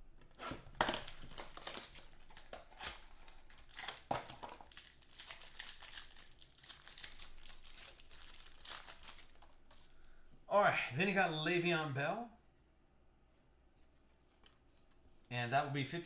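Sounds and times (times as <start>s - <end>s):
plastic wrapper crinkling: 0.3s - 10.1s.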